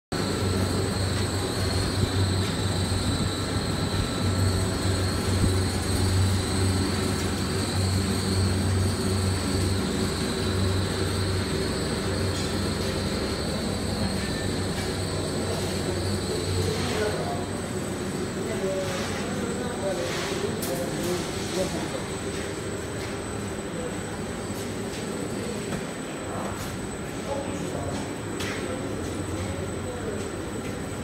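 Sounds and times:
motor hum: 0:00.1 - 0:18.4
high steady whine: 0:00.1 - 0:26.5.

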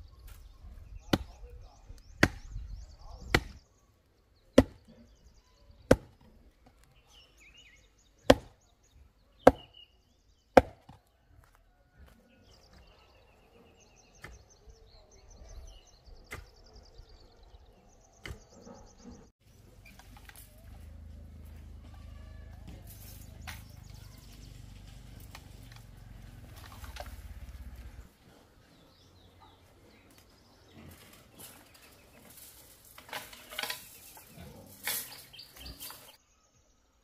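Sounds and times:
log pounding wooden post: 0:01.1 - 0:01.4, 0:02.1 - 0:03.6, 0:04.6 - 0:04.9, 0:05.9 - 0:06.3, 0:08.2 - 0:08.6, 0:09.4 - 0:09.8, 0:10.5 - 0:11.5.

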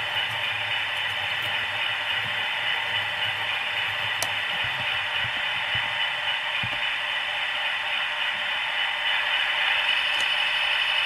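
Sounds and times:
model locomotive engine hum: 0:00.0 - 0:11.0
click: 0:10.1 - 0:10.4.

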